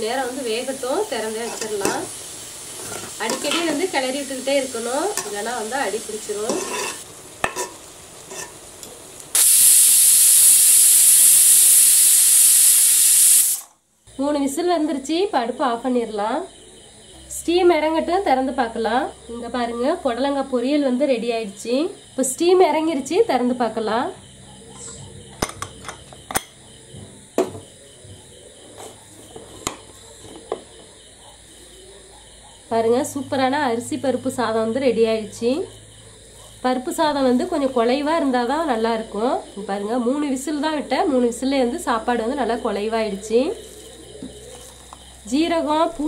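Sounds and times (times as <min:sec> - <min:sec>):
pressure cooker whistle hiss: 0:09.3 - 0:13.8.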